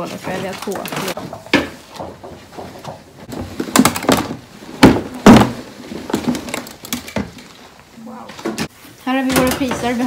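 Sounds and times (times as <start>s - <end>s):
plastic boxes knocking together: 0.2s - 7.4s
loud thunks: 1.3s - 6.4s.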